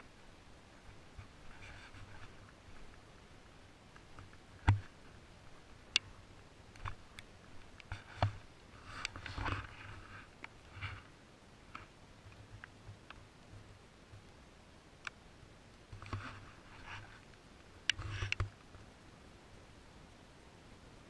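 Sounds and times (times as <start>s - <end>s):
scratchy rustles: 1.2s - 3.0s, 7.9s - 11.1s, 16.0s - 17.3s.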